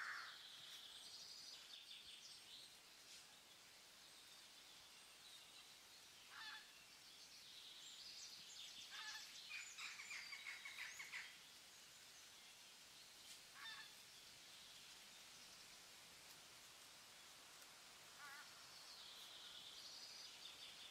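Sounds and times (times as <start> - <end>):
soft steady hiss: 0.0 - 20.9
faint bird calls: 6.3 - 6.8, 8.8 - 11.4, 13.5 - 14.0, 18.1 - 20.9.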